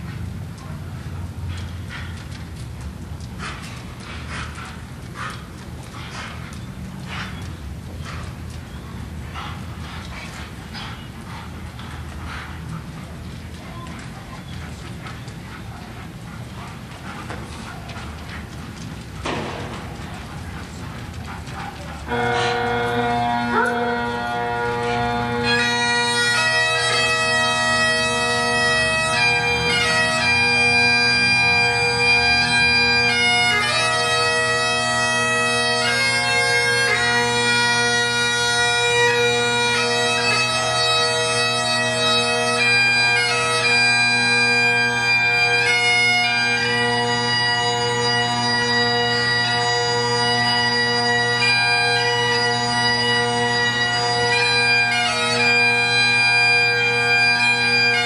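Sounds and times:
bagpipes playing a slow tune: 22.1 - 58.0.

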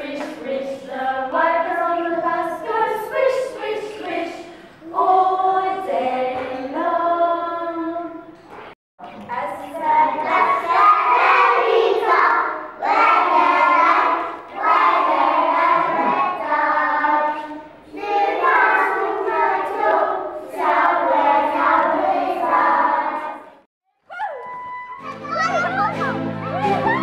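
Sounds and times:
children singing: 0.0 - 8.3, 9.6 - 23.5.

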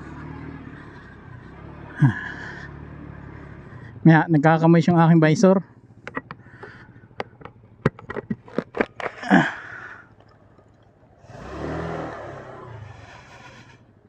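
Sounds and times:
motorcycle engine revving: 0.0 - 10.2, 11.0 - 14.0
motorcycle knocks and rattles: 5.8 - 9.5.

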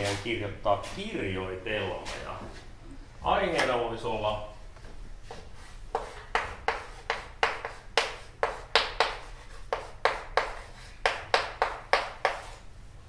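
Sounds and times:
chalk tapping and scraping on chalkboard: 5.2 - 12.7.

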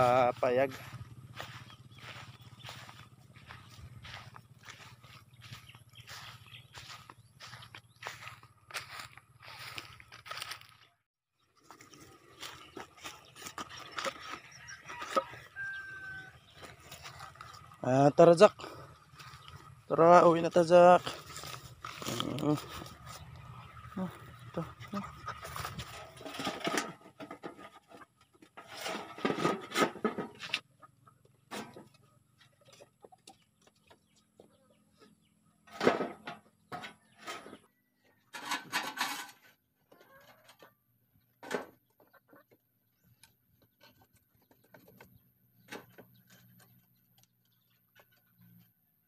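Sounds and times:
chickens clucking: 0.0 - 10.5, 11.6 - 38.6, 39.8 - 48.7
dry sticks rustling and cracking: 3.4 - 10.8, 21.0 - 23.2.

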